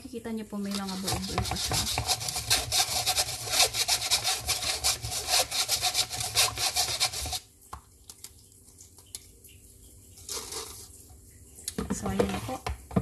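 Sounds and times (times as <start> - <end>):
whisk rasping through metal sieve: 0.6 - 7.5
whisk stirring in bowl: 0.6 - 7.5.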